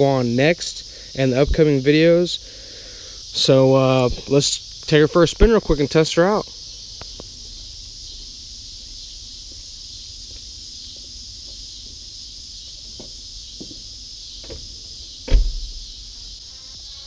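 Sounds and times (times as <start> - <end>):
insect chirring: 0.0 - 17.0
car door shutting: 14.4 - 15.8.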